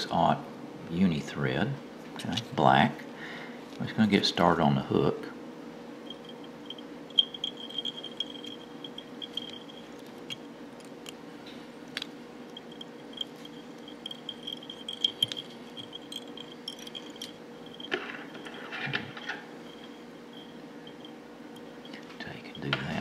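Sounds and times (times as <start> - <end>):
faint high whine: 2.6 - 10.9, 11.9 - 23.0
low hum: 5.8 - 22.8.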